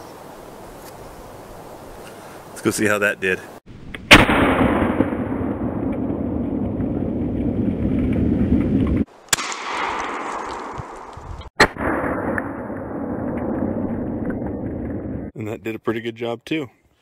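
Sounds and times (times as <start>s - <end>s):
shotgun blasts: 4.0s - 6.6s, 9.3s - 11.0s, 11.6s - 13.1s.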